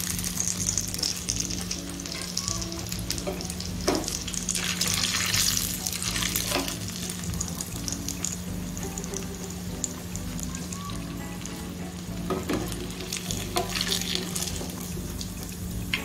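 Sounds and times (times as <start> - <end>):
oil sizzling in pan: 0.0 - 16.0
metal spatula knocking pan: 0.6 - 4.4.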